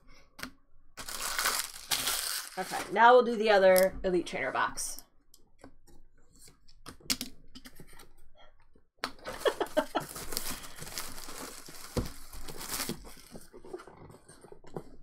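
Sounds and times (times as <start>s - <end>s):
knife slitting plastic wrap: 1.0s - 2.9s, 9.4s - 13.3s
plastic wrap crinkling: 1.0s - 3.0s, 9.2s - 15.0s.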